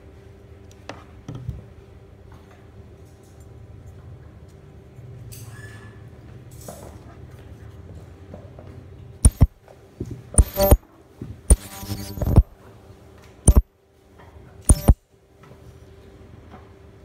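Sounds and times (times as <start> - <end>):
spot welder buzzing pulses: 9.2 - 9.6, 10.4 - 10.8, 11.5 - 12.6, 14.7 - 15.0.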